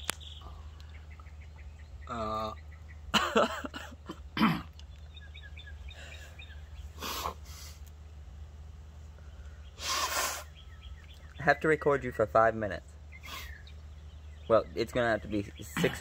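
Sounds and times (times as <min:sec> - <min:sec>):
man coughing: 0:03.1 - 0:04.7, 0:15.7 - 0:16.0
man blowing nose: 0:07.0 - 0:07.8, 0:09.8 - 0:10.5.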